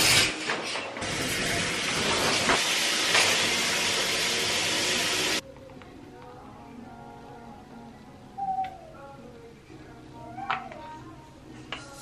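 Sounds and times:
shower water spraying: 1.0 - 5.4.

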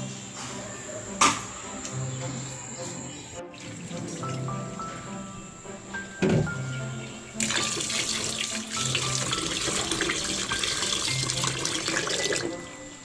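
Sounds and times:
tap water running into bowl: 7.4 - 12.6.

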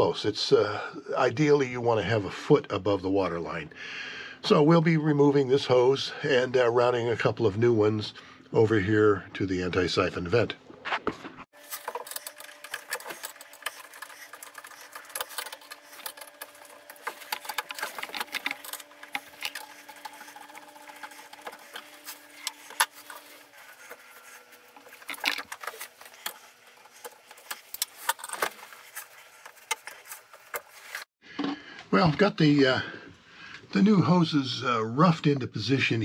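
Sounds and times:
screwdriver turning hose clamp: 11.7 - 30.7.

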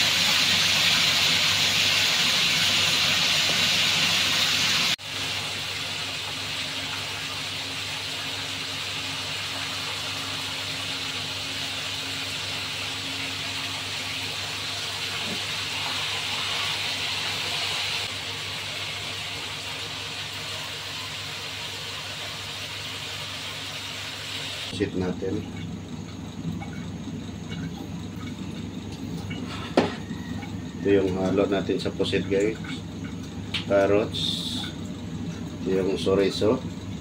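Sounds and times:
squid sizzling in hot oil: 0.0 - 24.7.

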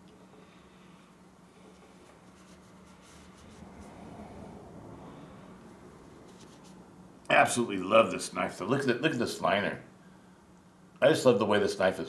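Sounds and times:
scratchy handling sounds: 1.6 - 4.0, 6.2 - 6.8.

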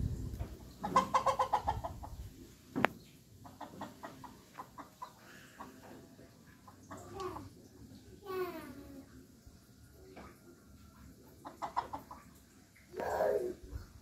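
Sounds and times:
chickens clucking: 0.0 - 7.9, 10.0 - 14.0.

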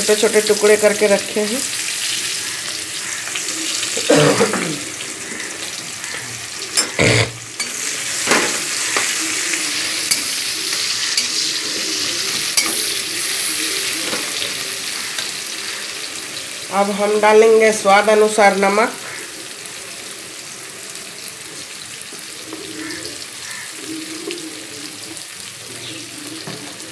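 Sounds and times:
onions sizzling in oil: 0.0 - 26.9
spatula scraping and knocking pan: 6.1 - 9.4.

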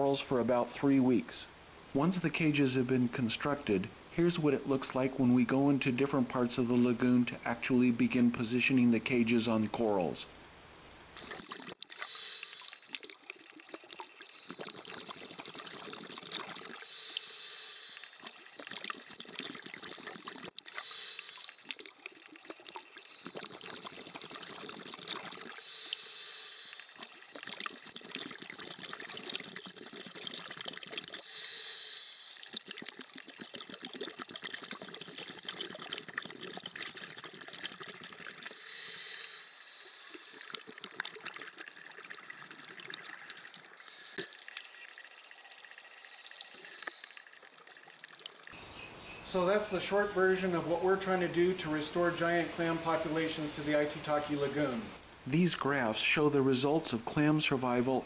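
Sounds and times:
bubbling exhaled air: 11.2 - 48.0
regulator hiss on inhale: 16.9 - 18.0, 25.6 - 26.9, 31.3 - 32.4, 38.5 - 40.3.

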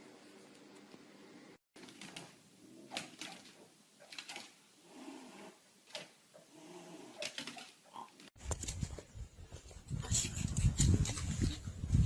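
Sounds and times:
faint animal growling: 6.4 - 8.2.

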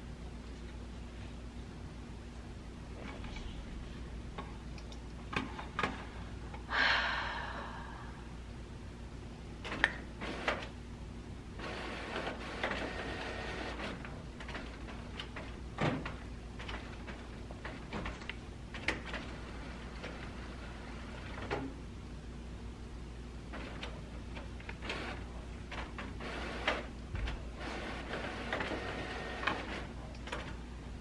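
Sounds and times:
printer running: 9.6 - 10.7, 11.6 - 18.1, 18.8 - 21.6, 23.5 - 26.9, 27.5 - 30.5.

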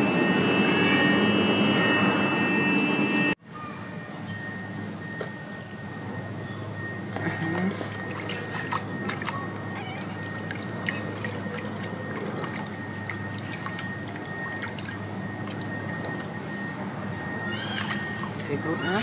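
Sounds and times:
steady high whine: 0.0 - 19.0
water splashing in basin: 7.5 - 16.4, 17.3 - 19.0.

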